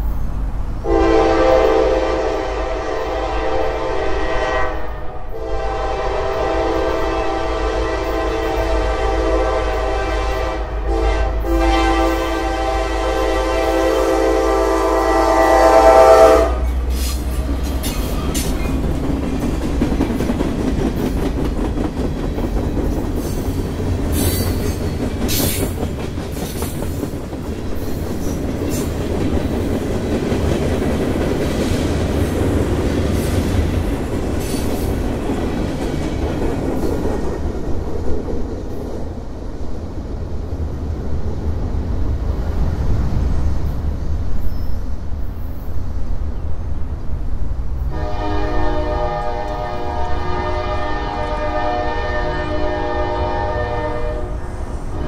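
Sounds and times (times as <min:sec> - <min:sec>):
low rumble of train cars: 0:00.0 - 0:55.0
train wheels on rails: 0:00.0 - 0:55.0
locomotive horn: 0:00.8 - 0:17.3, 0:47.9 - 0:55.0.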